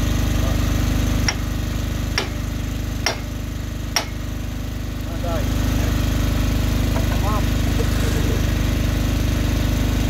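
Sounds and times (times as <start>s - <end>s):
engine running steadily: 0.0s - 10.0s.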